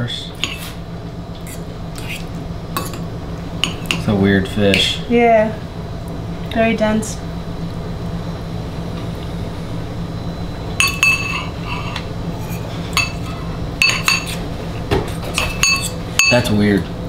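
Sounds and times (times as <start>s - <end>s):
steady low hum: 0.0s - 17.0s
cutlery clinking on metal bowl: 2.8s - 3.0s, 3.6s - 4.1s, 10.8s - 14.4s, 15.2s - 16.6s.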